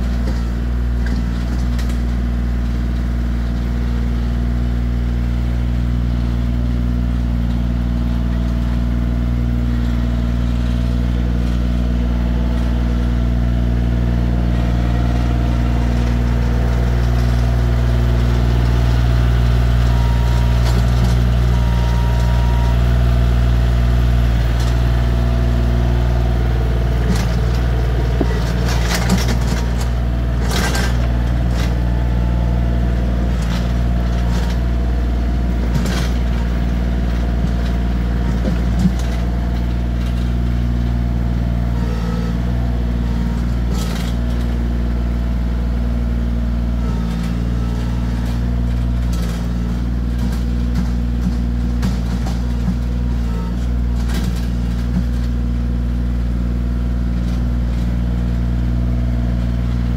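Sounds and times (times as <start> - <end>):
tractor diesel engine running: 0.0 - 59.9
clanks and rattles: 26.9 - 32.0, 35.7 - 40.7, 46.9 - 55.4.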